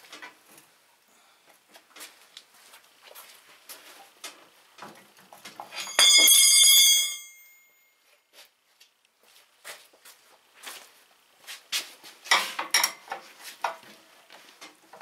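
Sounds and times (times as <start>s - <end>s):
knocks and clicks of metal parts: 4.8s - 7.1s, 12.3s - 13.8s
steel bar clanging on concrete: 5.7s - 7.6s.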